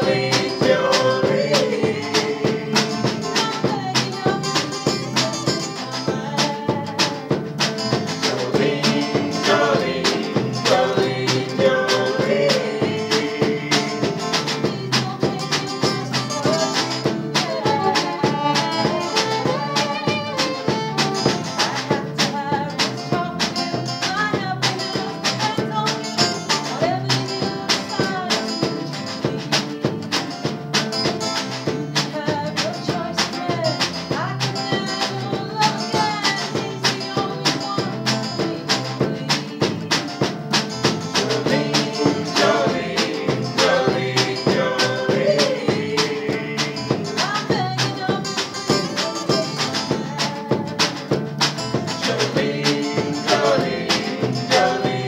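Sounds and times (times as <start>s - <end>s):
bass guitar: 0.0s - 55.0s
strummed guitar: 0.0s - 55.0s
fiddle playing a tune: 17.3s - 22.2s.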